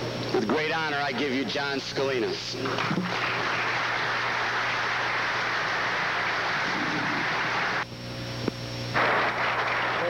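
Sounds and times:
audience applauding: 2.7 - 7.8, 9.0 - 10.0.

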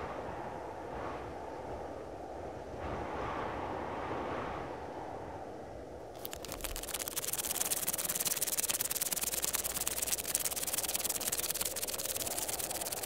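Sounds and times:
electrical static crackling hiss: 6.2 - 13.0.

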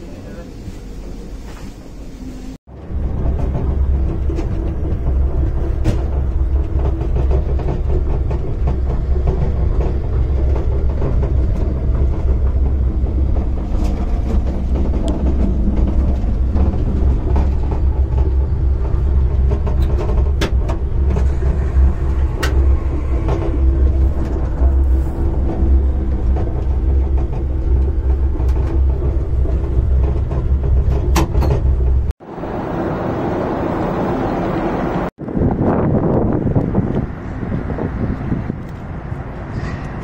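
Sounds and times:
train rumble and hum: 0.0 - 40.0.

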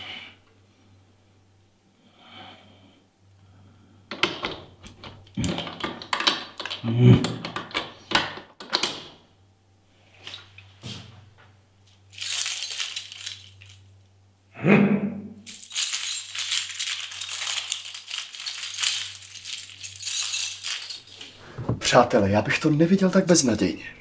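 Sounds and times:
metal keys jangling: 12.1 - 13.9, 15.5 - 21.4.

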